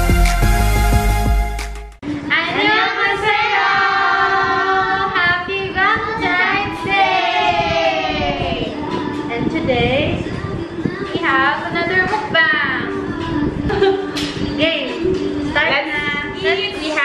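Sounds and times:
music: 0:00.0 - 0:17.0
women and girl singing together: 0:02.0 - 0:17.0.

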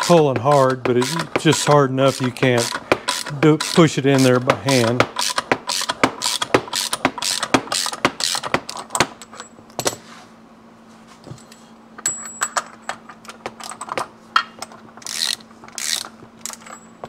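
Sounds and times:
hand tool mechanical clicks: 0:00.0 - 0:09.0, 0:15.0 - 0:16.7.

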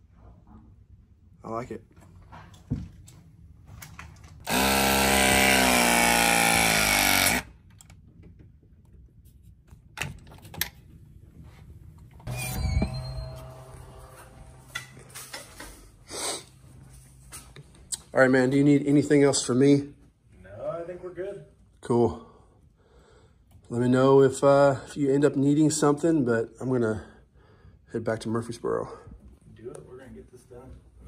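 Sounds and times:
press tool motor whine: 0:04.4 - 0:07.5.

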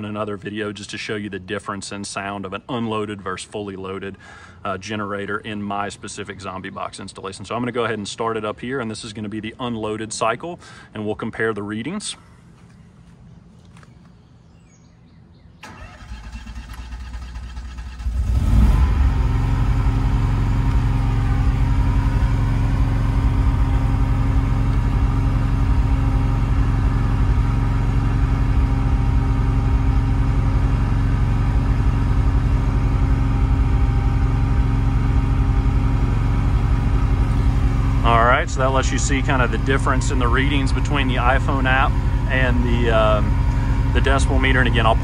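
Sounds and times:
generator starting and running: 0:15.6 - 0:45.0.

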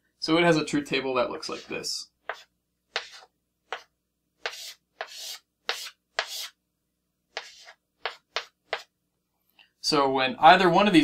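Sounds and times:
chalk on a chalkboard: 0:01.4 - 0:06.6, 0:07.3 - 0:08.9.

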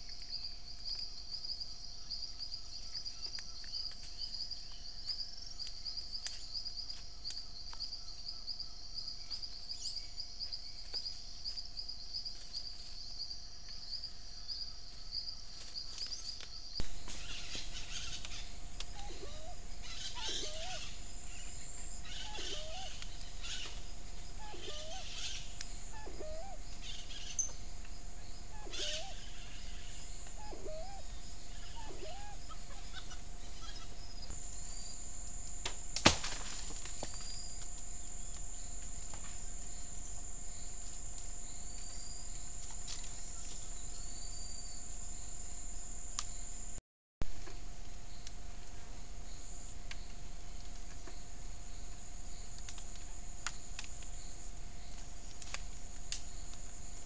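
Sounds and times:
insect trilling: 0:16.8 - 0:46.6
bird repeating rising call: 0:17.2 - 0:23.8, 0:24.4 - 0:27.5, 0:28.4 - 0:33.9
high bird chirps: 0:17.2 - 0:23.8, 0:24.4 - 0:27.6, 0:28.4 - 0:34.0.

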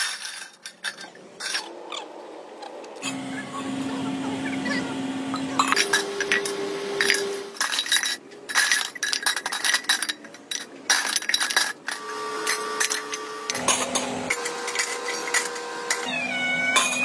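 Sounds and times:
metal canisters clinking: 0:00.0 - 0:01.8, 0:05.3 - 0:17.0.

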